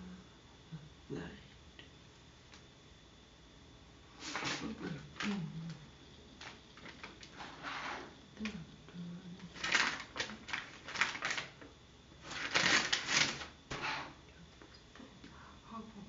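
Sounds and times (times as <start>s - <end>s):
person humming: 4.6s - 5.9s, 8.4s - 9.5s.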